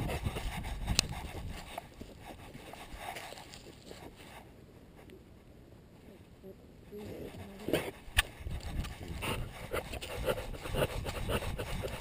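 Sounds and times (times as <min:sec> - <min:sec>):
camera rubbing and scraping: 0:00.0 - 0:04.5, 0:07.6 - 0:12.0
dog footsteps on dry leaves: 0:01.6 - 0:04.3.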